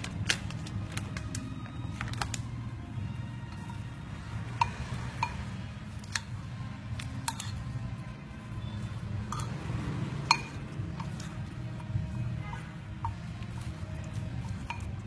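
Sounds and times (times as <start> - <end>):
metal spoon clinking ceramic bowl: 4.5 - 6.3, 7.0 - 7.7, 9.2 - 11.9, 12.5 - 15.0.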